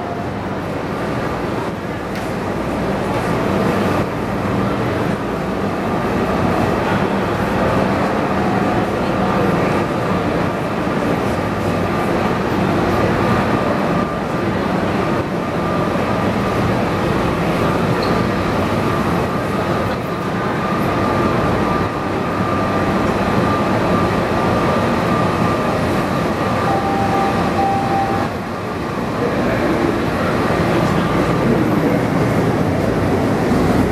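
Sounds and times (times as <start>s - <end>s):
train hum with high whine: 0.0s - 33.9s
two-part tone: 26.6s - 28.4s.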